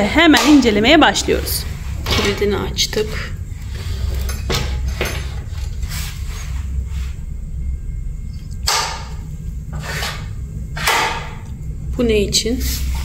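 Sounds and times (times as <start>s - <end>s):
low hum: 0.0s - 13.0s
metal sliding and scraping: 3.6s - 7.2s, 9.7s - 11.0s.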